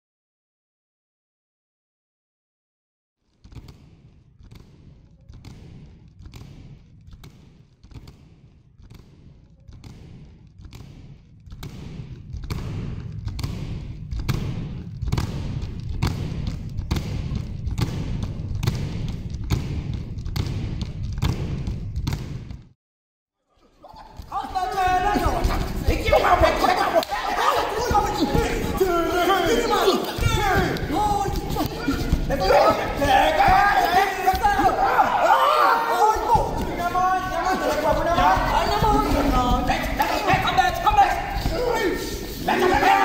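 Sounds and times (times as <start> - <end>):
feet stamping on stage floor: 24.0 - 35.3, 36.2 - 43.0.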